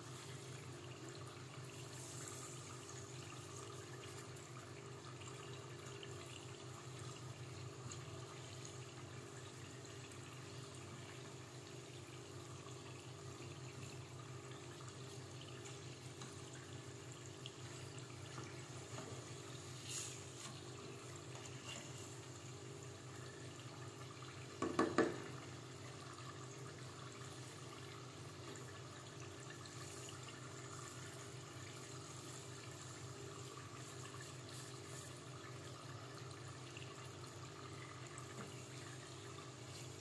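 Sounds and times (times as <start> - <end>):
deep-frying sizzle: 0.0 - 40.0
brief knock: 24.6 - 25.2.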